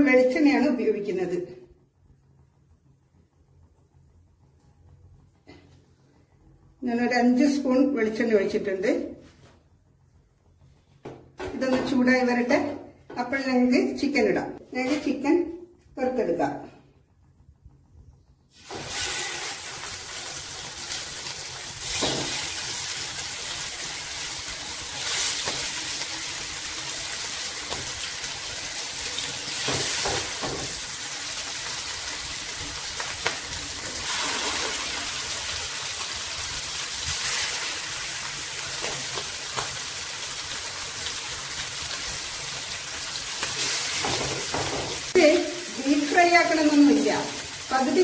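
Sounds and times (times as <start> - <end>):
chicken sizzling in oil: 18.5 - 48.0.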